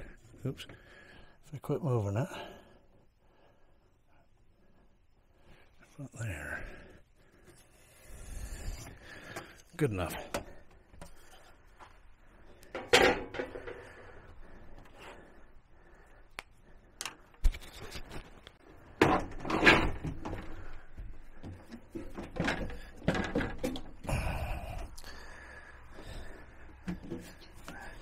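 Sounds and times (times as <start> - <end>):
metal stove top laid into counter: 12.7 - 13.8.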